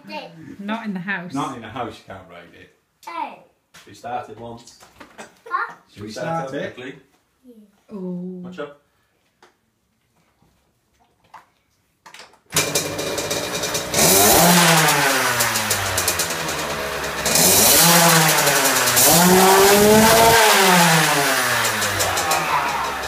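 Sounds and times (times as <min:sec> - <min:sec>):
minibike engine starting and revving: 0:12.5 - 0:23.0.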